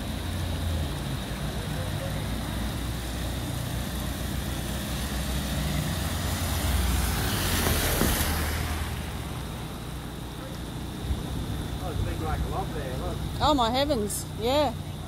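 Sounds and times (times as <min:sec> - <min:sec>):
car tyres hissing on wet road: 0:00.0 - 0:13.2
floodwater rushing: 0:01.1 - 0:11.1.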